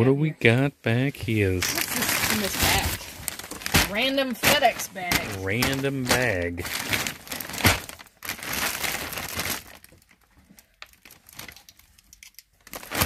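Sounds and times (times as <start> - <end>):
plastic bag crinkling and rustling: 1.2 - 13.0.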